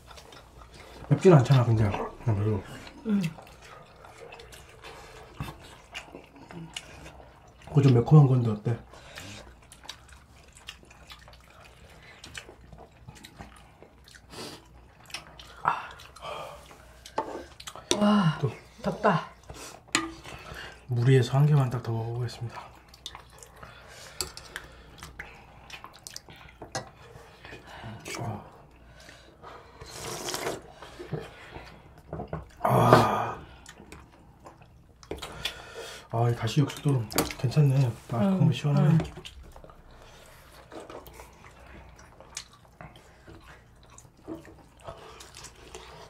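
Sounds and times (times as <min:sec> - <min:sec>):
chewing: 0:00.0 - 0:21.0, 0:22.5 - 0:32.7, 0:33.4 - 0:35.8, 0:38.7 - 0:46.0
wet slurping: 0:24.6 - 0:31.4.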